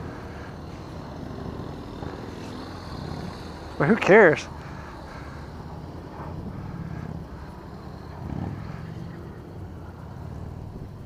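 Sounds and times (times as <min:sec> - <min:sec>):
motorcycle engine running: 0:00.0 - 0:11.0.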